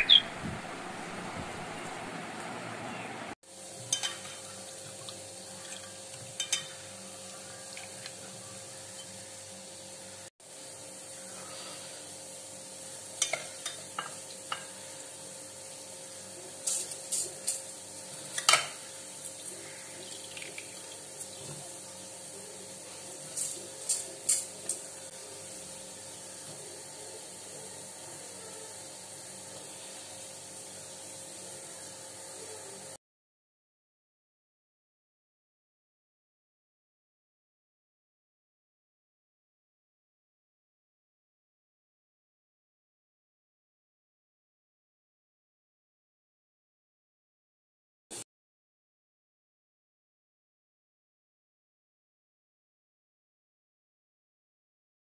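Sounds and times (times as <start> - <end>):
light clinks in metal pots: 3.8 - 4.5, 5.6 - 6.8, 23.3 - 24.8.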